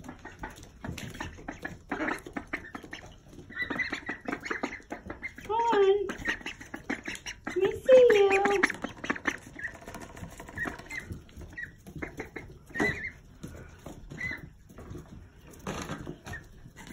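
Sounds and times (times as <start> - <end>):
ducklings peeping: 0.0 - 16.9
pattering in wood shavings: 0.0 - 16.9.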